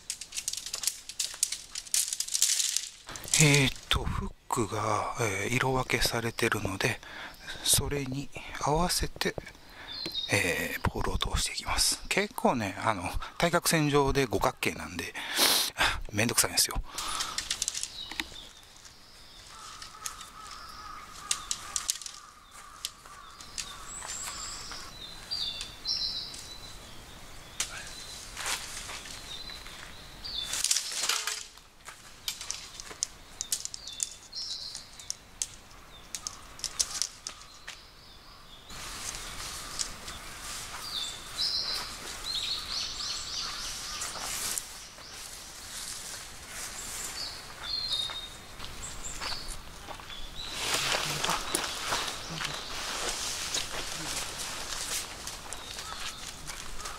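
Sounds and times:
tent poles clicking and knocking: 0:00.0 - 0:04.0, 0:16.9 - 0:26.6, 0:27.6 - 0:37.9, 0:38.7 - 0:44.8, 0:50.5 - 0:56.9
small birds chirping: 0:00.0 - 0:15.2, 0:16.2 - 0:56.9.

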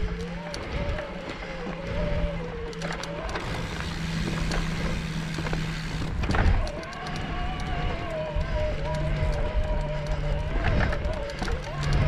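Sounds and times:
electric bike motor whining: 0:00.0 - 0:12.0
tyres clicking on rock: 0:00.0 - 0:12.0.

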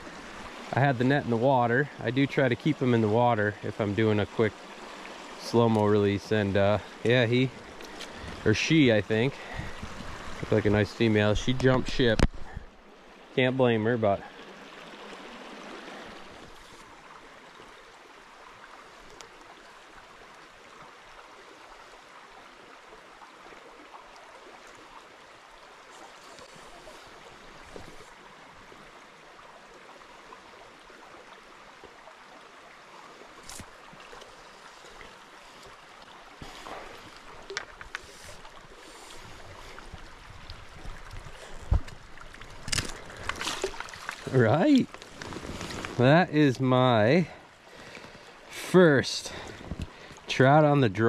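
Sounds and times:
small stream flowing: 0:00.0 - 0:51.0
knocks and splashes: 0:40.8 - 0:46.0.

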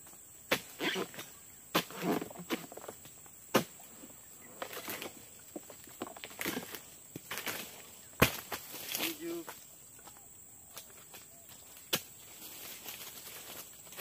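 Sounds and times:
chisel chopping palm fronds: 0:00.5 - 0:02.6, 0:03.5 - 0:03.8, 0:06.2 - 0:09.2
rustling of fronds and litter: 0:04.4 - 0:14.0.

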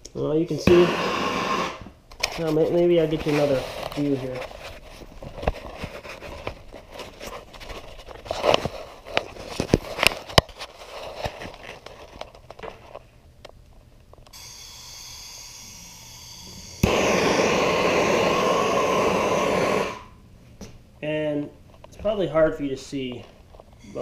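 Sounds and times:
gas torch flame rushing: 0:00.6 - 0:01.9, 0:16.8 - 0:20.2.

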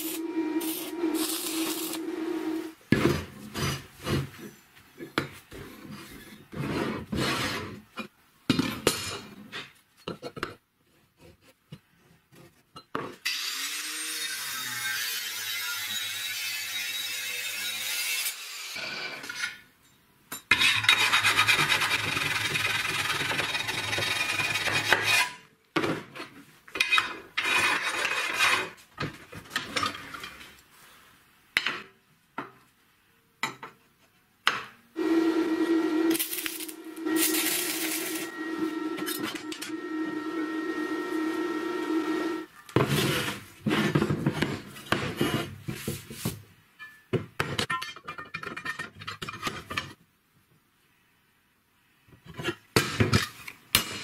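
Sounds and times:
humming machine noise: 0:35.0 - 0:42.5.

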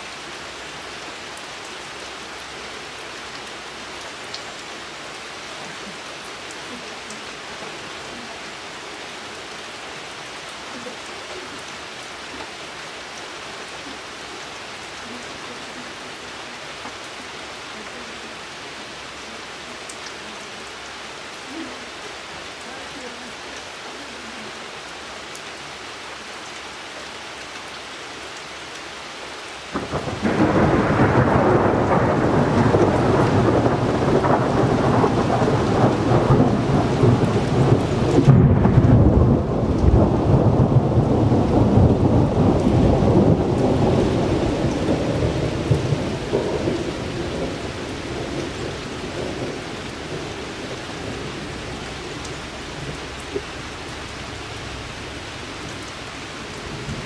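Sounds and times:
steady rain: 0:00.0 - 0:57.0
thunder rolling: 0:29.8 - 0:50.3.

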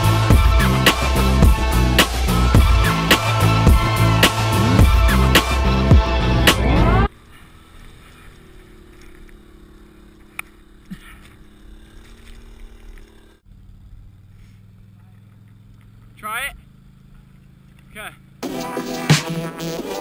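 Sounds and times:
music: 0:00.0 - 0:07.1, 0:18.4 - 0:20.0
atv engine humming: 0:00.0 - 0:20.0.

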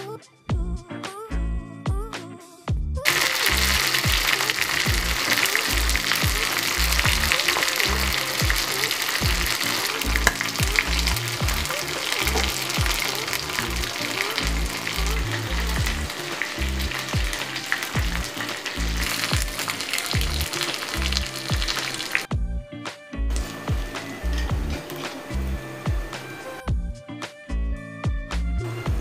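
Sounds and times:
music with deep bass line: 0:00.5 - 0:08.6, 0:09.2 - 0:11.7, 0:12.3 - 0:29.0
meat sizzling in hot oil: 0:03.0 - 0:22.3, 0:23.4 - 0:26.4.

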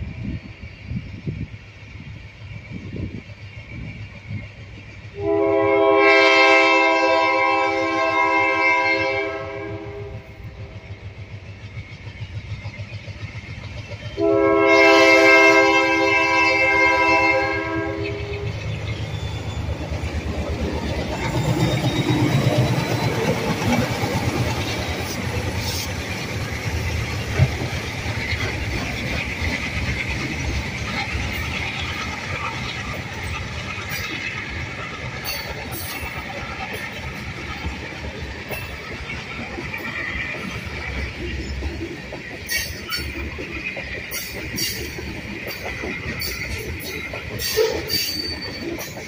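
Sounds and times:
train air horn blasts: 0:05.2 - 0:10.4, 0:14.2 - 0:18.6, 0:47.4 - 0:48.2
wheels clattering on rails: 0:10.3 - 0:49.0.

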